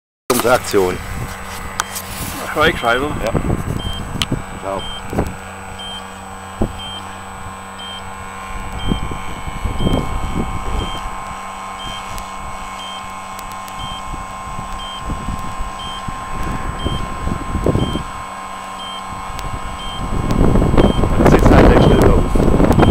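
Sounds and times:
boat motor humming: 0.3 - 22.9
short high beeps: 4.8 - 5.1, 5.8 - 6.1, 6.8 - 7.1, 7.8 - 8.1.

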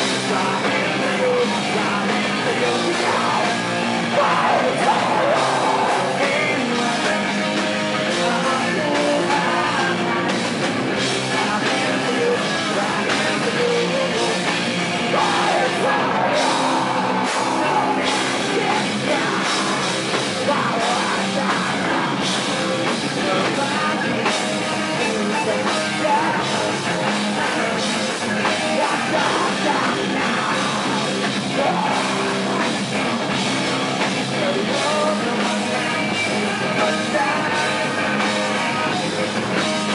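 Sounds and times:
person singing: 0.0 - 10.4, 11.2 - 32.8, 34.2 - 39.9
bass guitar: 0.0 - 39.9
distorted electric guitars: 0.0 - 39.9
drum kit: 0.0 - 39.9.

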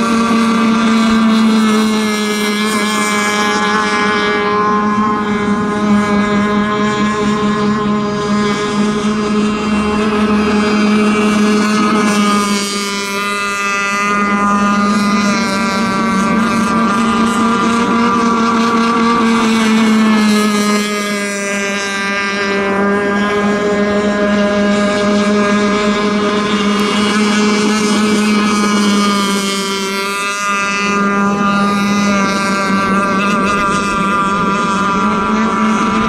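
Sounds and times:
rc boats high-revving buzz: 0.0 - 36.0.

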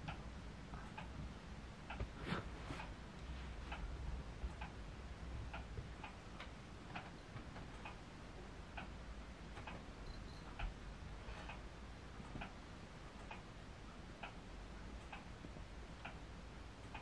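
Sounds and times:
light ticking: 0.0 - 2.1, 3.7 - 10.8, 11.4 - 17.0
low steady hum: 0.0 - 17.0.

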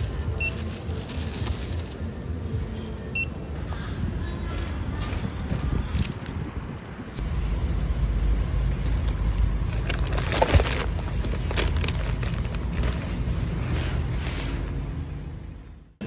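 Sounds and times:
fabric bag rustling: 0.0 - 2.8
plastic packaging crinkling: 0.0 - 2.8, 9.7 - 13.2.

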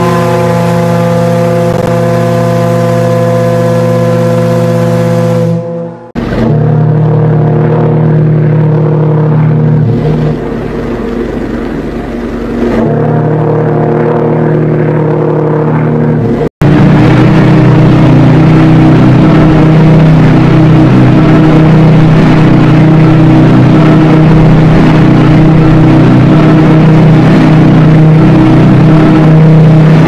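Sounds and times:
ship steam whistle blasts: 0.0 - 9.6.

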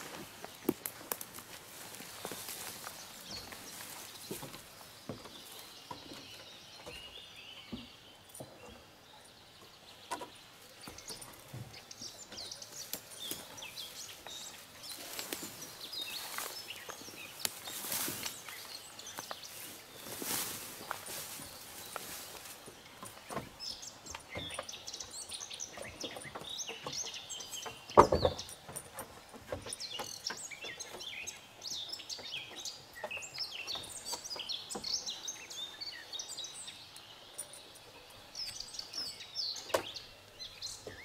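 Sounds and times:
footsteps through undergrowth: 0.0 - 6.3, 12.3 - 24.0.

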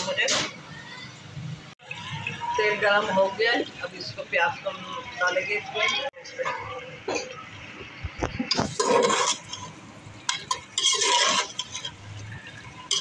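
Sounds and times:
spoon scraping pot: 8.2 - 13.0
metal clinking on pot: 8.6 - 13.0.

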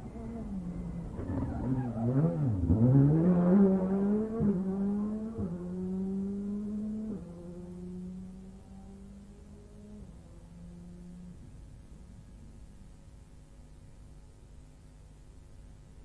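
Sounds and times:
rally car engine accelerating: 0.0 - 12.2.

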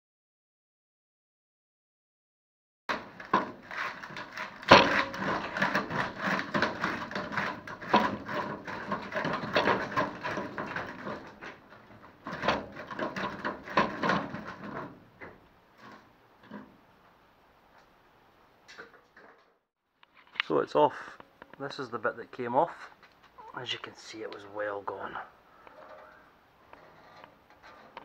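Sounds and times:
metal knocks: 2.9 - 16.7
rusted metal cracking and scraping: 2.9 - 16.8, 22.8 - 28.0.

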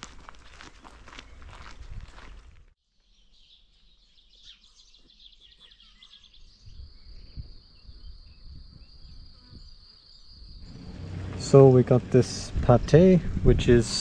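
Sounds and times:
small birds chirping: 2.9 - 13.1
low rumbles: 10.6 - 14.0.

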